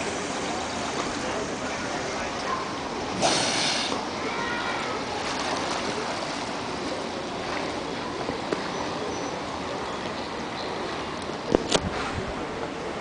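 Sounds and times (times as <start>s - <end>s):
sea water lapping and splashing: 0.0s - 8.7s.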